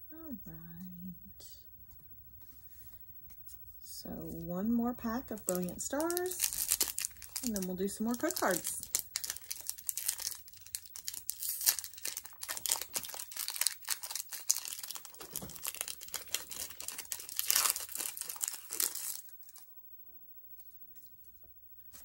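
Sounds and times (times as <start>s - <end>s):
foil wrapper crinkling and tearing: 5.4s - 19.7s.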